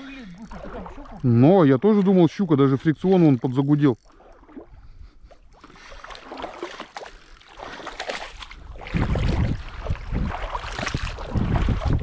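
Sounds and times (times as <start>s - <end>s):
fish splashing and thrashing: 0.0s - 12.0s
wind buffeting microphone: 8.6s - 12.0s.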